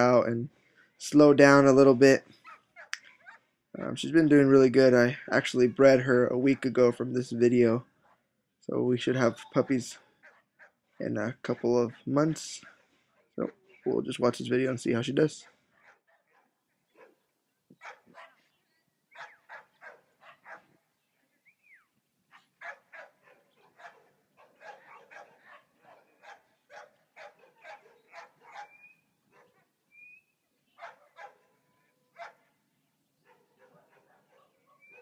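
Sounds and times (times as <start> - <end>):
dog barking: 2.4 - 3.5, 10.0 - 10.8, 15.4 - 17.2, 17.8 - 18.5, 19.1 - 20.8, 22.3 - 29.7, 30.8 - 32.6, 33.2 - 35.0.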